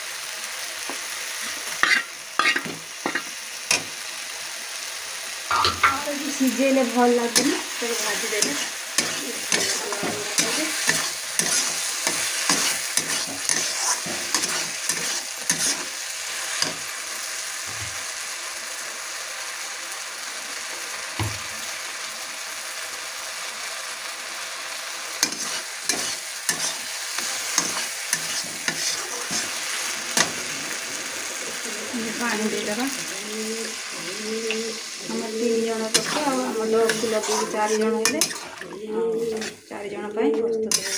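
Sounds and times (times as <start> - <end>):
food sizzling in a pan: 0.0 - 40.9
metal ladle scraping a pan: 1.5 - 3.3, 5.5 - 6.1, 7.3 - 15.9, 25.2 - 31.6, 35.8 - 39.7, 40.7 - 40.9
knock on pan: 5.5 - 6.1.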